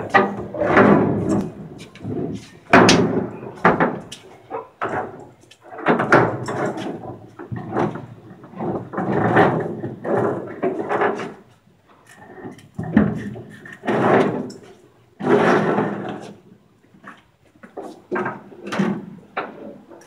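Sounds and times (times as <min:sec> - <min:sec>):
loud clanking knocks: 0:00.0 - 0:04.1.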